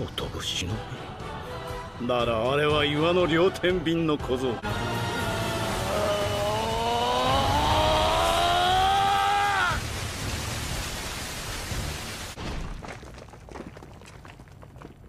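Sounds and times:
long rising pitched tone: 0:04.6 - 0:09.3.

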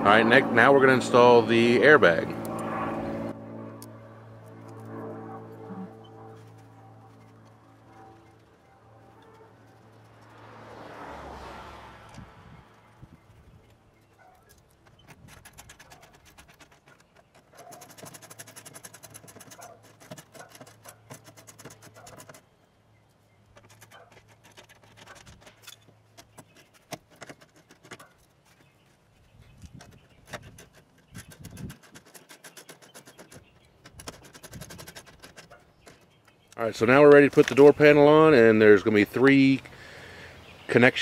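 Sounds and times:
tools clicking and scraping: 0:05.9 - 0:10.5, 0:14.0 - 0:22.5, 0:23.4 - 0:37.8.

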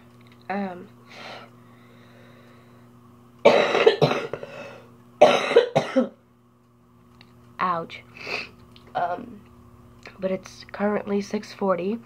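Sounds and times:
woman coughing: 0:03.4 - 0:04.4, 0:05.2 - 0:06.2.

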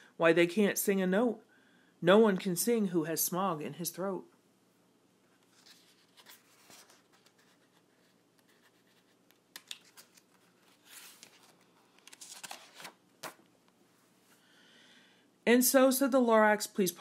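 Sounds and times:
paper rustling and scratching: 0:05.4 - 0:13.4.

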